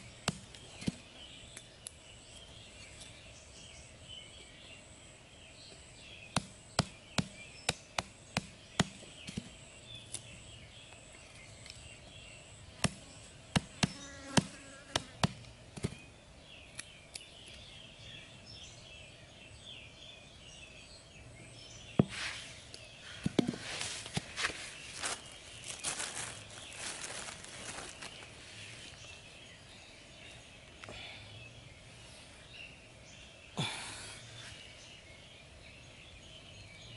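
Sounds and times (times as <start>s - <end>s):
insects buzzing: 0.0s - 36.6s
hatchet chopping a stick: 0.2s - 1.0s, 6.3s - 9.5s
rustle of sticks and leaves: 22.0s - 30.9s.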